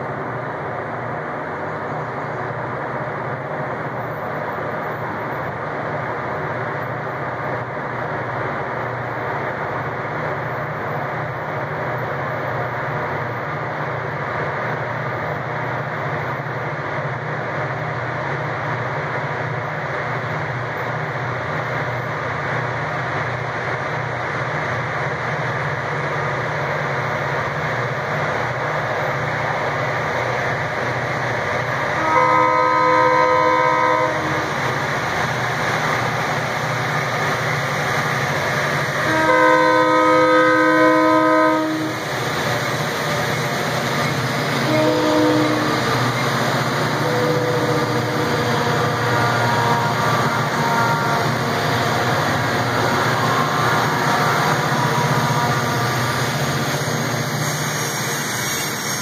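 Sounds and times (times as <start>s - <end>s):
train wheels clattering on rail: 3.1s - 59.0s
distant locomotive horn: 31.9s - 34.6s, 38.9s - 42.0s, 44.6s - 56.8s.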